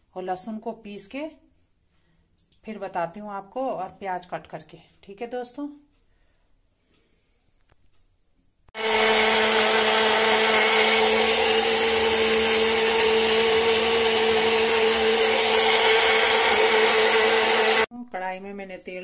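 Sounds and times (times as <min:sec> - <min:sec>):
mixer grinder motor whine: 0:08.8 - 0:17.9.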